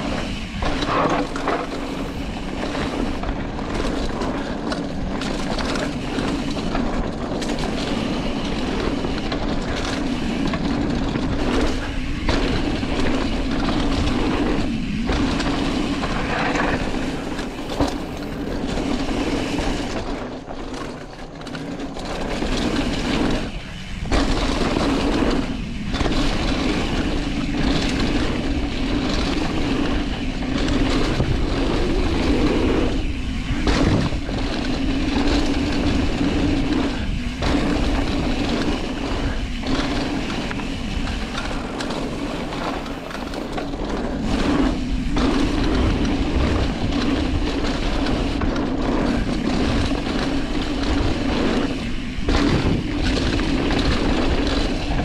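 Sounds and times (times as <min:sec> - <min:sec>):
bike tyres rolling on dirt: 0:00.0 - 0:55.0.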